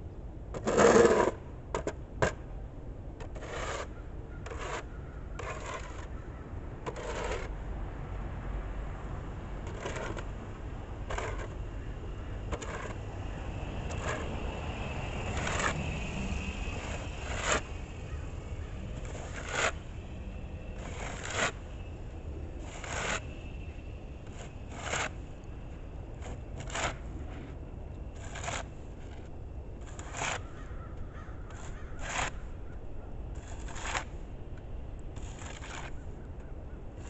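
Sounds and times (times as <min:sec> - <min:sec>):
steady low rumble: 0:00.0 - 0:37.0
snow shovel scraping concrete: 0:00.6 - 0:01.4, 0:03.2 - 0:03.9, 0:04.5 - 0:06.1, 0:06.9 - 0:07.5, 0:09.6 - 0:10.3, 0:11.1 - 0:11.6, 0:12.5 - 0:13.0, 0:13.9 - 0:14.3, 0:15.3 - 0:19.9, 0:20.8 - 0:21.7, 0:22.6 - 0:23.3, 0:24.2 - 0:25.2, 0:26.2 - 0:27.6, 0:28.2 - 0:30.4, 0:31.6 - 0:32.4, 0:33.4 - 0:34.2, 0:35.2 - 0:36.0.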